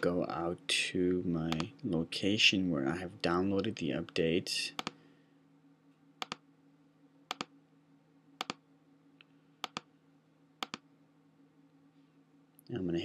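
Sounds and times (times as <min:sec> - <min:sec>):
faint steady hum: 0:00.0 - 0:13.0
computer mouse clicking: 0:04.8 - 0:05.0, 0:06.2 - 0:06.4, 0:07.3 - 0:07.5, 0:08.4 - 0:08.6, 0:09.6 - 0:09.9, 0:10.6 - 0:10.8.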